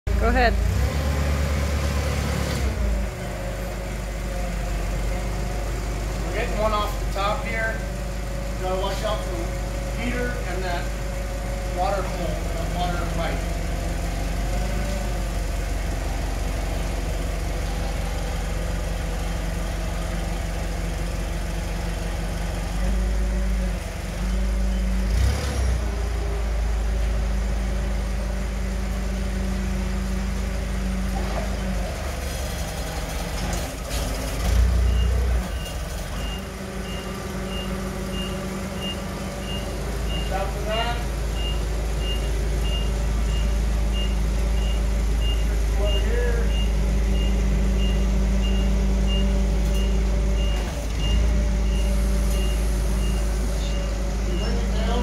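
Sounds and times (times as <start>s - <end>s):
forklift engine running: 0.1s - 55.0s.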